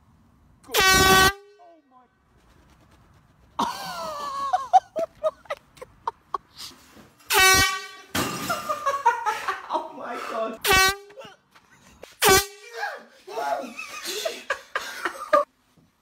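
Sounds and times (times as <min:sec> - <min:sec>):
air horn blast: 0:00.7 - 0:01.8, 0:07.3 - 0:08.2, 0:10.6 - 0:11.2, 0:12.2 - 0:12.6
bursts of laughter: 0:03.6 - 0:06.6, 0:08.4 - 0:09.8, 0:13.5 - 0:15.5.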